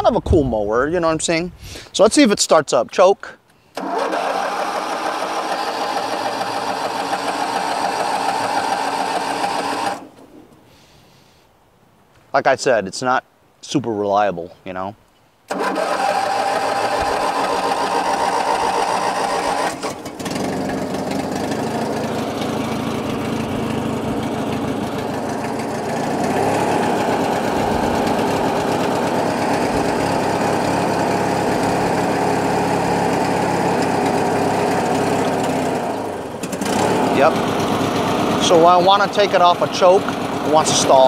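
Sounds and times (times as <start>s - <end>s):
lawn tractor engine running: 3.8s - 10.4s, 15.5s - 41.0s.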